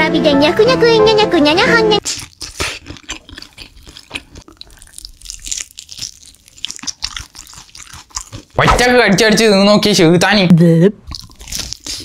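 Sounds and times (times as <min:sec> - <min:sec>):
crunching and chewing: 0:02.0 - 0:08.6, 0:11.0 - 0:12.0.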